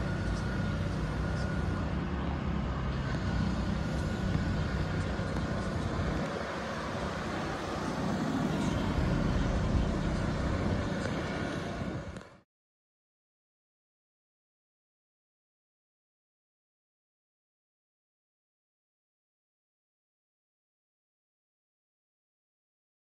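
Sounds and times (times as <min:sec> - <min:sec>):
car traffic road noise: 0:00.0 - 0:12.4.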